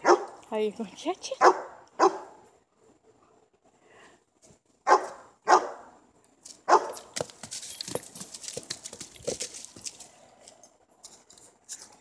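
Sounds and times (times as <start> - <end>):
dog barking: 0.0 - 0.4, 1.4 - 2.4, 4.8 - 6.0, 6.7 - 7.0.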